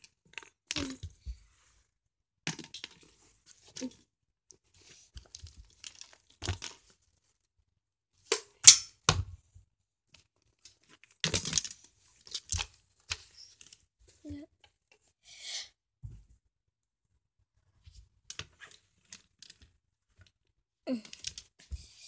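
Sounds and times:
handling rustles and scrapes: 4.6s - 7.4s.

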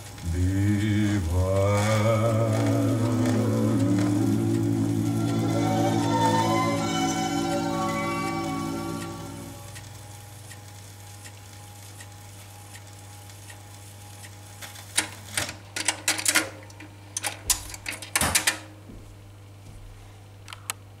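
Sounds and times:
low steady hum: 0.0s - 14.7s
stylus ticking in run-out groove: 0.9s - 14.6s
record changer mechanism clattering: 14.8s - 18.7s.

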